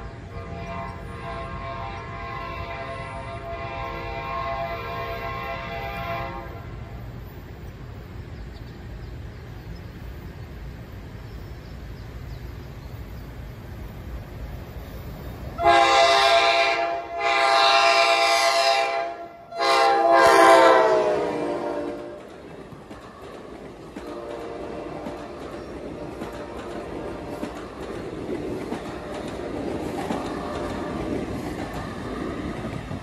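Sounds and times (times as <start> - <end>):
locomotive horn blasts: 0.0 - 6.8, 15.6 - 22.2, 24.1 - 25.0
low train rumble: 0.0 - 33.0.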